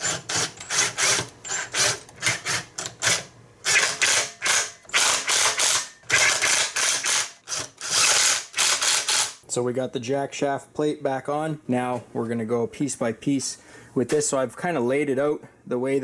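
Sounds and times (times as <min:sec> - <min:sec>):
cordless driver spinning in bursts: 0:00.0 - 0:09.4.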